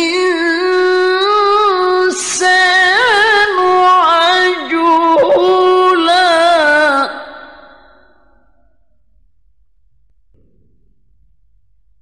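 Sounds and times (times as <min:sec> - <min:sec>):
man reciting melodically: 0:00.0 - 0:07.9.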